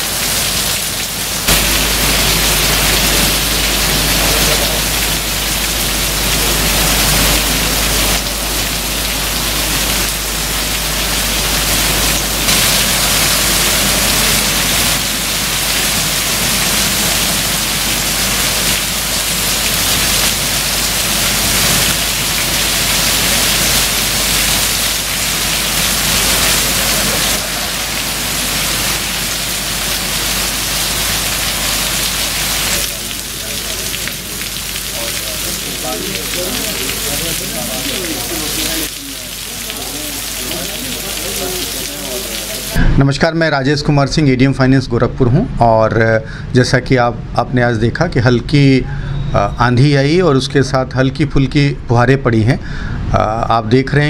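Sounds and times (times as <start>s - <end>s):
heavy rain pouring: 0.0s - 43.6s.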